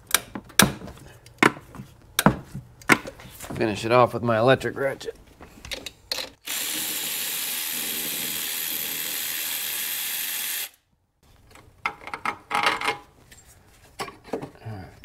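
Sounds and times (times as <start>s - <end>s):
electric ratchet whirring: 6.4s - 10.8s.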